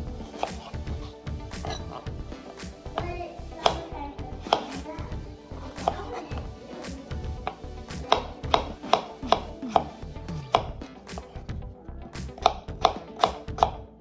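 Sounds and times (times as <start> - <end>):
knife tapping cutting board: 7.5 - 9.5, 12.4 - 13.8.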